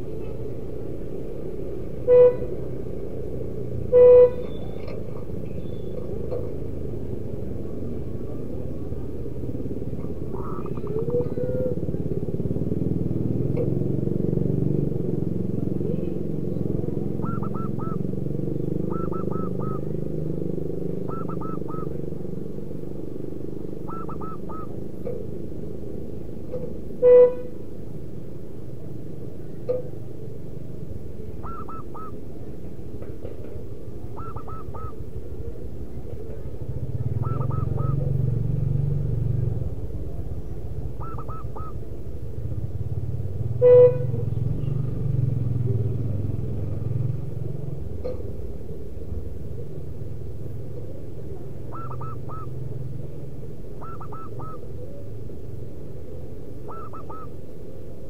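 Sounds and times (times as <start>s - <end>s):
traffic engine rumble: 0.0s - 58.0s
dove calling: 3.8s - 14.2s, 15.2s - 25.5s, 31.2s - 38.4s, 39.5s - 42.5s, 45.7s - 58.0s.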